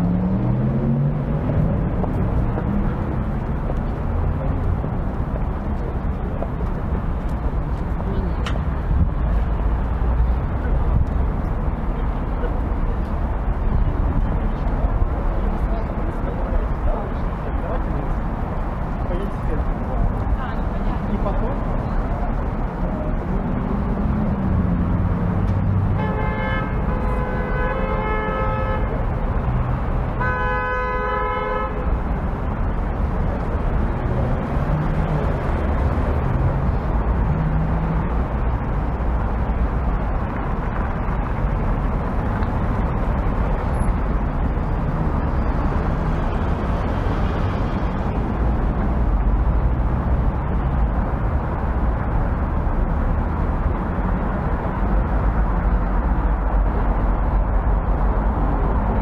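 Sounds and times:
city street traffic: 0.0s - 59.0s
vehicle horn honking: 26.0s - 29.0s, 30.2s - 31.9s.

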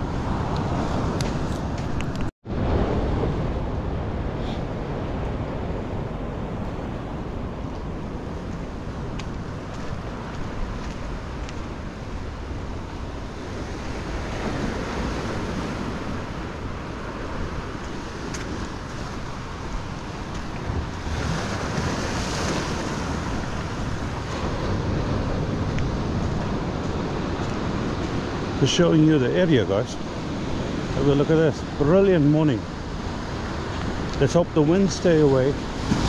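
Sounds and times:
wind buffeting microphone: 0.0s - 36.0s
surf breaking on rocks: 17.8s - 36.0s.

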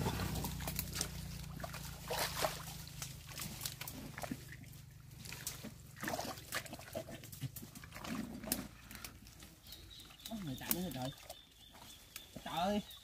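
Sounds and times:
wet mud squelching: 0.0s - 13.0s.

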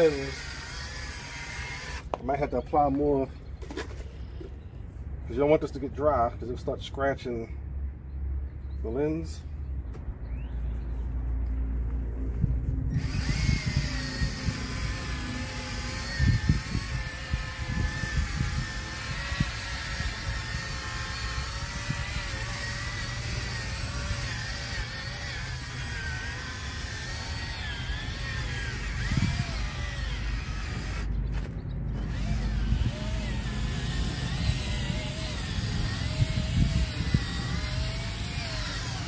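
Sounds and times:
cordless drill motor whine: 0.0s - 2.2s, 12.9s - 39.0s.

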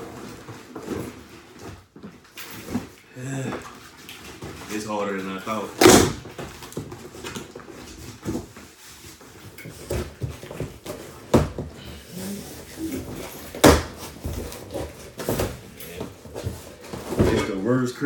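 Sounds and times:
cardboard knocks and scrapes: 5.5s - 17.6s.

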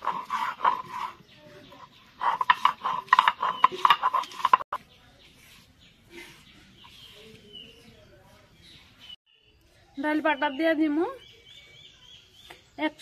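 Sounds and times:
stone roller scraping on grinding stone: 0.0s - 7.9s.

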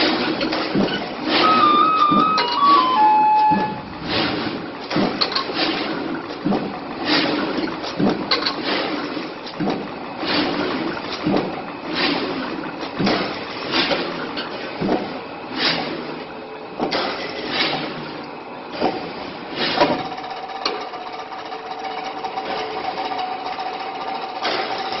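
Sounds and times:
steady machine hum: 0.0s - 14.4s
machine knocking sharply: 1.4s - 4.4s.

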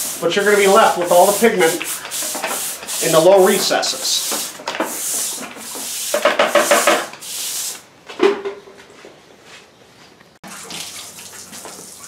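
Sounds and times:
push broom scraping concrete: 0.0s - 7.8s.

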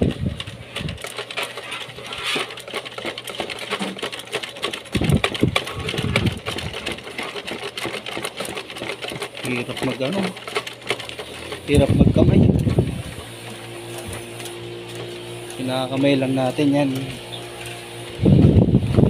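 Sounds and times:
sewing machine clicking: 0.0s - 18.2s.

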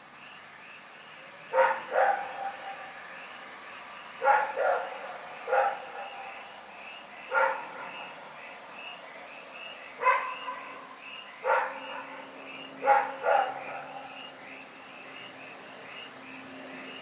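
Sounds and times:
dog barking: 1.5s - 2.9s, 4.2s - 6.4s, 7.3s - 8.1s, 10.0s - 14.2s.

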